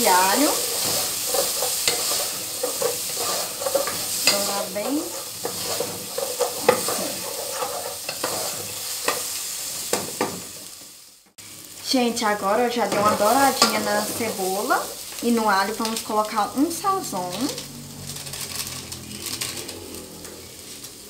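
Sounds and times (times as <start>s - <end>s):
wooden spoon scraping a pan: 0.0s - 10.8s, 12.8s - 14.6s
onion sizzling in oil: 0.0s - 21.0s.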